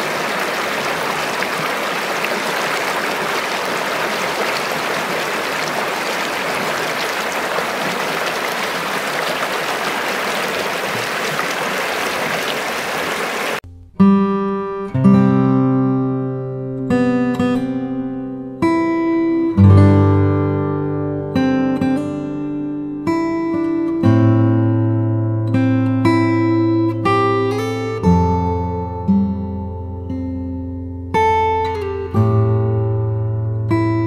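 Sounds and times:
stream rushing over log: 0.0s - 13.6s
strummed acoustic guitar: 13.7s - 34.0s.

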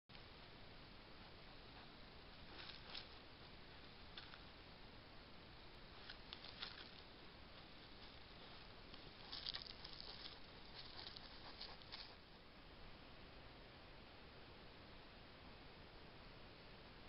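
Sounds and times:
steady hiss: 0.1s - 17.0s
animal rustling through dry grass: 1.3s - 4.6s, 5.8s - 12.4s.

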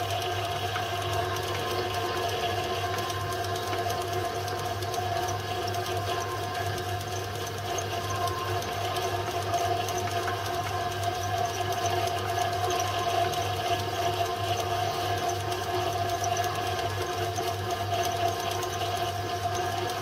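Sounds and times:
milling machine motor hum: 0.0s - 20.0s.

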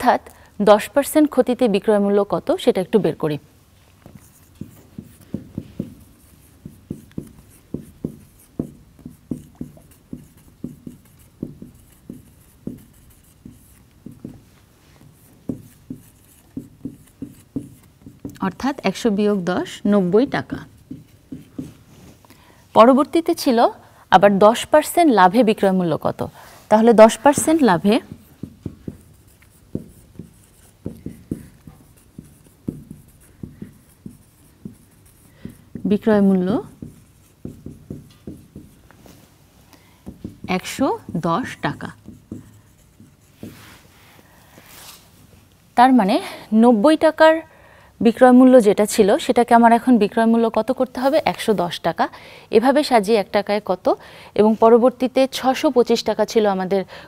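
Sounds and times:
marker writing on whiteboard: 4.0s - 22.2s, 25.3s - 43.9s.

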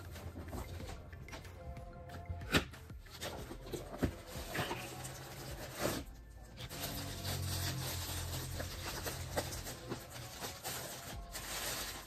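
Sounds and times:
plastic wrap crinkling: 3.5s - 12.0s.

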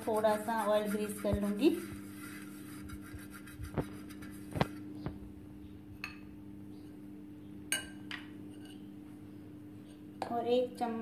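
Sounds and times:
brush rubbing over a pan: 0.0s - 4.9s
steady low hum: 0.0s - 11.0s.

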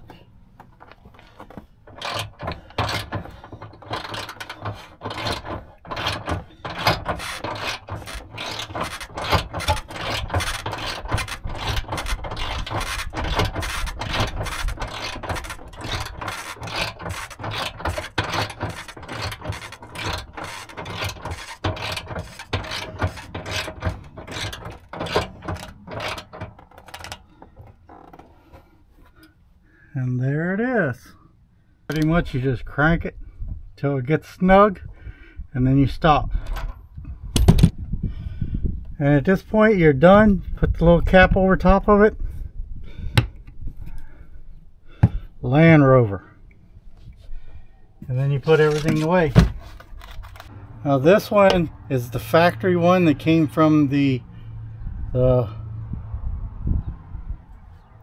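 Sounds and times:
hand winch ratcheting and clicking: 0.8s - 29.4s, 31.9s - 32.1s, 48.1s - 52.6s.

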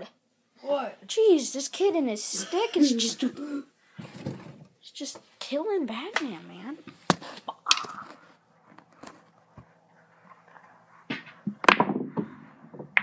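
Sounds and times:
rustling: 6.3s - 11.7s
pool balls clicking: 7.2s - 13.0s.

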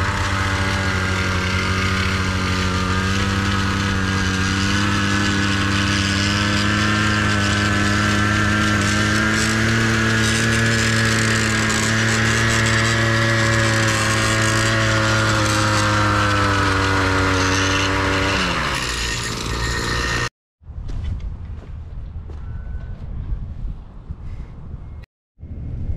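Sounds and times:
tiller engine running: 0.0s - 20.3s.

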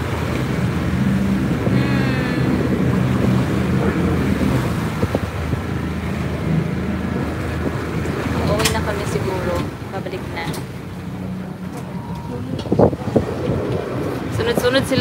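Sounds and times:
wind noise on microphone: 0.0s - 8.8s, 12.0s - 15.0s
boat engine humming: 0.0s - 15.0s
water wash: 0.0s - 15.0s.

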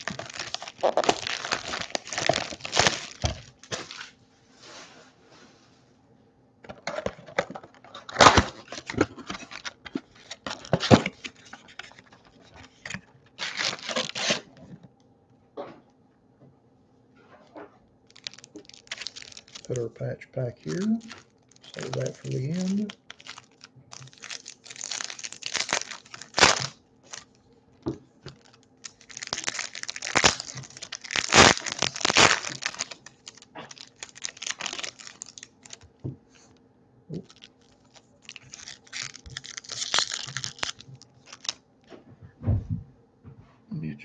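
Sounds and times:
foil wrappers torn and crinkled: 0.0s - 4.1s, 6.7s - 14.7s, 18.1s - 19.8s, 20.5s - 27.4s, 28.2s - 35.9s, 37.1s - 41.6s.

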